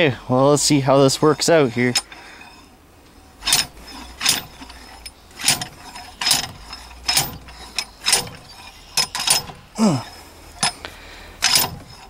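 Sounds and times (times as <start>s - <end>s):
slide hammer metallic clanks: 3.4s - 9.6s, 11.4s - 12.0s.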